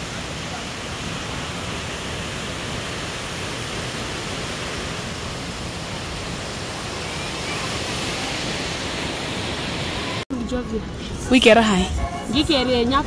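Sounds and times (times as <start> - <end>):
river rushing over rocks: 0.0 - 10.2.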